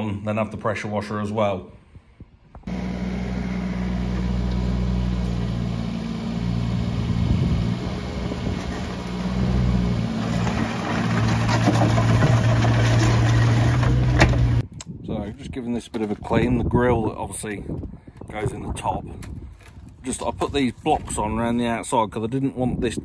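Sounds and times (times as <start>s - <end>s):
diesel excavator engine running: 2.7s - 14.6s
metal clanking and scraping on concrete: 8.4s - 14.6s.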